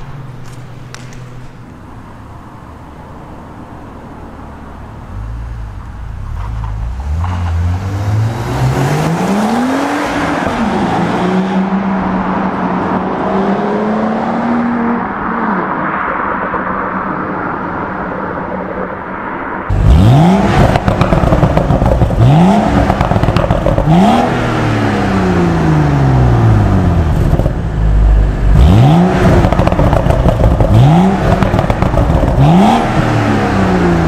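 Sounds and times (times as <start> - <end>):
car engine accelerating: 5.1 - 19.0, 19.6 - 34.0
exhaust echoing off walls: 8.1 - 34.0.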